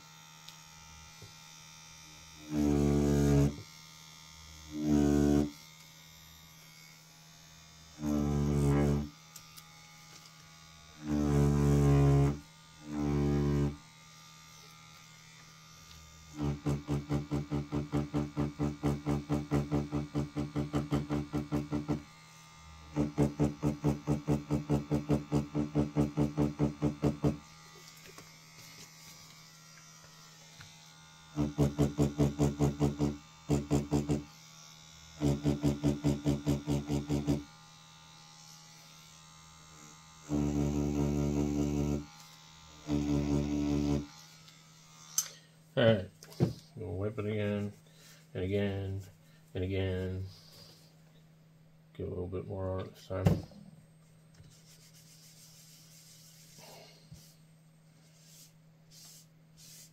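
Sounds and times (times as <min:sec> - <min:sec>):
tattoo machine buzzing: 0:00.0 - 0:45.4.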